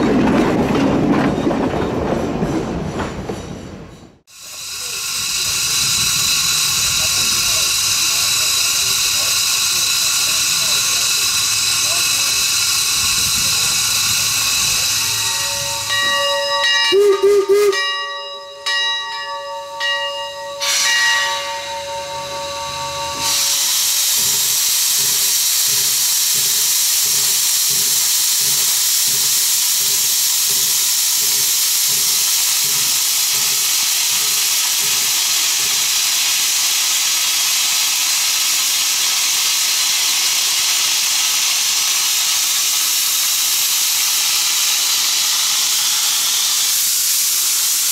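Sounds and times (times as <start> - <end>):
steam locomotive chuffing: 0.0 - 47.9
steam hissing from cylinders: 4.3 - 18.0, 20.6 - 47.9
steam whistle blasts: 16.8 - 18.0.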